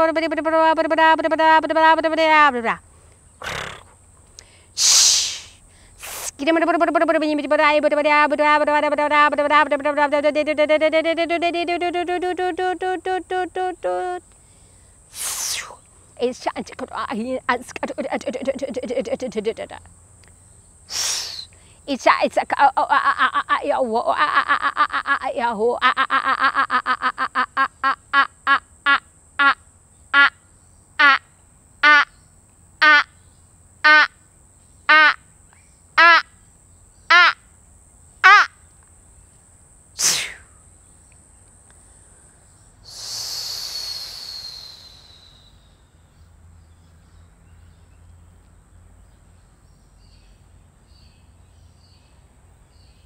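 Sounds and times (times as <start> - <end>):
woman vocal toning ha pulses: 4.8 - 6.4, 15.1 - 19.8, 40.0 - 40.5
hissing with falling whistle: 42.9 - 45.6.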